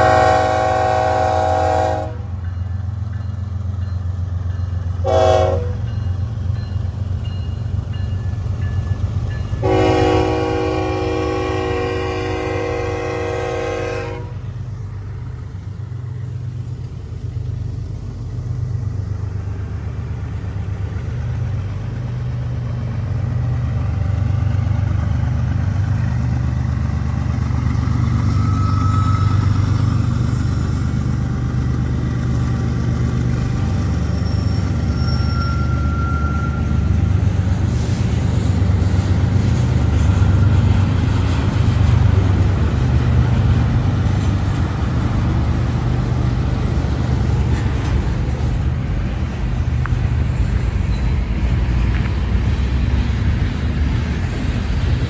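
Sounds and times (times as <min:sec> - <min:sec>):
train horn blast: 0:00.0 - 0:02.3, 0:05.0 - 0:05.8, 0:09.6 - 0:14.4.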